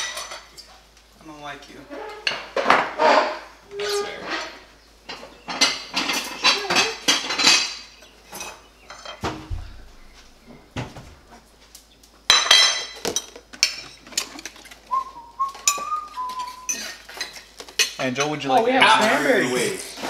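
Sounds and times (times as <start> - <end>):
ceramic plates clinking: 2.0 - 10.8, 12.3 - 14.7, 15.6 - 19.6
dull thump: 9.2 - 11.5.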